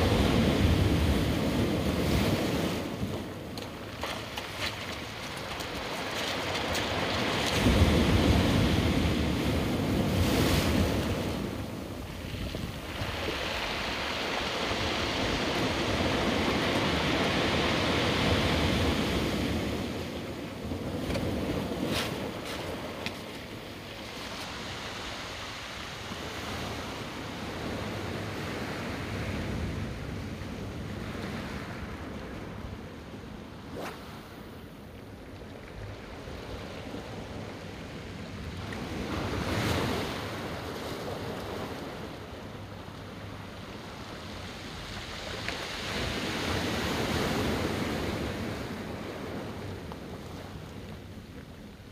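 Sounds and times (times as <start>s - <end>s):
ocean surf on rocky shore: 0.0s - 51.9s
wind on microphone: 4.6s - 42.7s.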